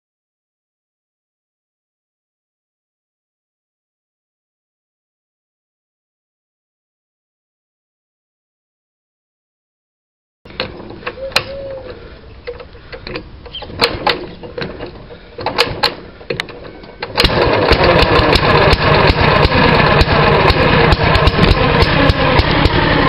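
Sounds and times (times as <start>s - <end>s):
single-cylinder engine running: 10.5s - 23.0s
starter rope clicks and knocks: 12.4s - 18.5s.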